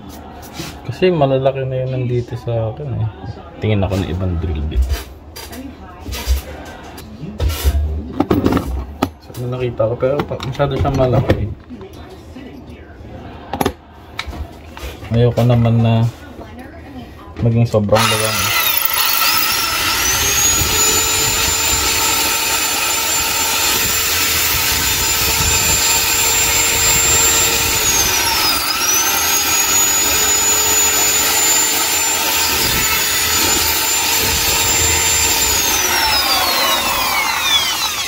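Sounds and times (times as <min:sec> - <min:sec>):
electric drill boring into wall: 0:18.0 - 0:38.0.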